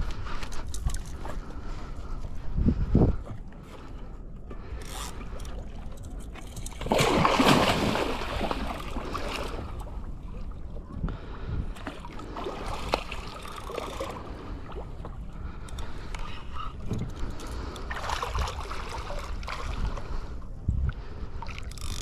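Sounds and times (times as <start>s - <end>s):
water noise: 0.0s - 22.0s
fish splashing at water surface: 6.8s - 9.6s.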